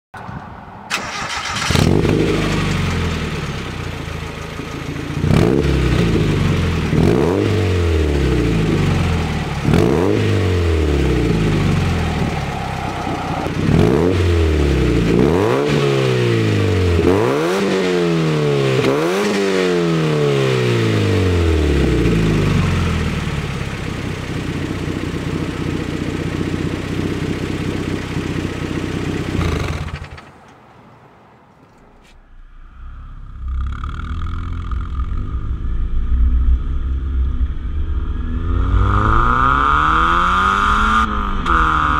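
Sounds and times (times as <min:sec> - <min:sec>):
car engine idling: 0:00.9 - 0:15.5, 0:21.1 - 0:30.6
car engine revving: 0:00.9 - 0:30.3, 0:31.7 - 0:41.9.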